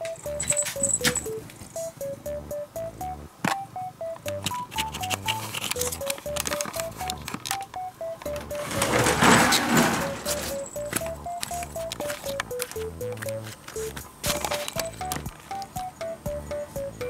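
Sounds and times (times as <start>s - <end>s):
bouncy background music: 0.0s - 17.0s
clicks: 3.0s - 16.1s
rustling noise burst: 8.5s - 10.8s.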